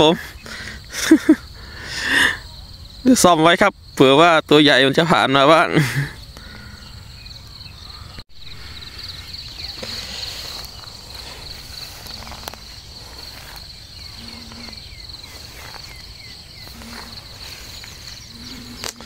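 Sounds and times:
insects trilling: 0.0 - 19.0.

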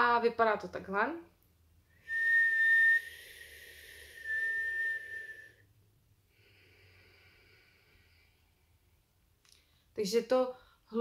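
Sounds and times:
high-pitched breath whistle: 2.0 - 5.7
soft breath: 3.0 - 10.0.

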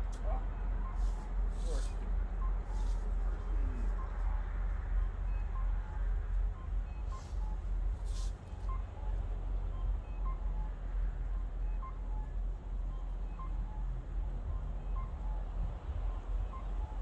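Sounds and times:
rustles: 1.0 - 4.3, 7.0 - 8.7.

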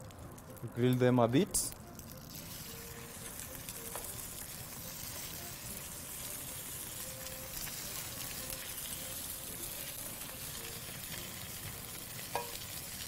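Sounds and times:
meat sizzling on a griddle: 1.9 - 13.0.

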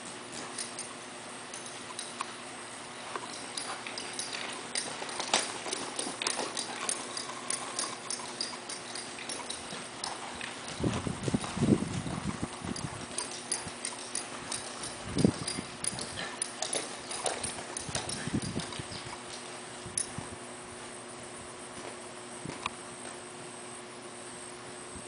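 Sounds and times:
horse hoofbeats on dirt: 0.0 - 2.2, 3.1 - 19.8.

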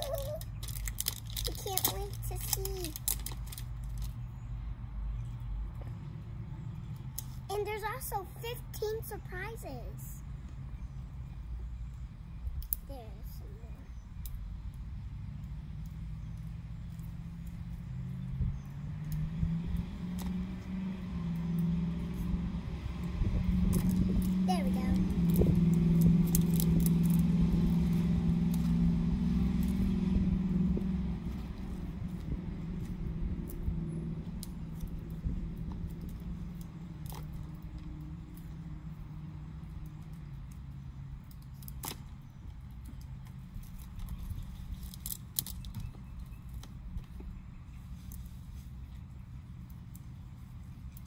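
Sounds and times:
plastic wrapper crinkling: 0.0 - 4.2
low engine hum: 0.0 - 51.0
steady low rumble: 0.0 - 51.0.

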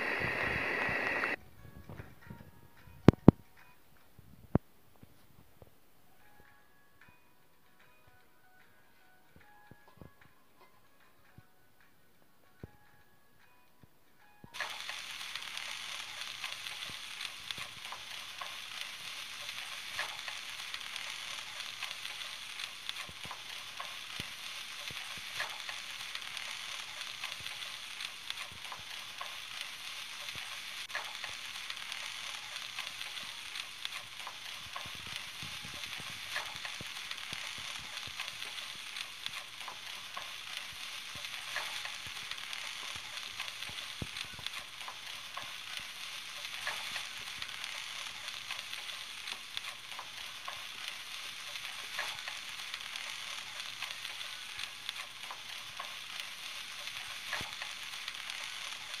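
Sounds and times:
onions sizzling in hot oil: 0.0 - 1.4, 14.6 - 59.0
spatula stirring: 14.6 - 59.0.

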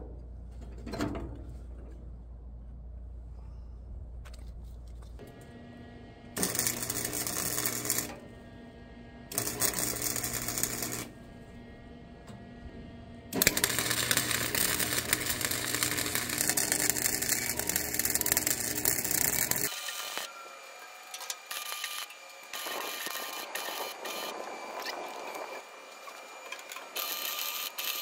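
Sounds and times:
welder crackling buzz: 5.2 - 8.4, 9.3 - 11.6, 13.3 - 28.0.

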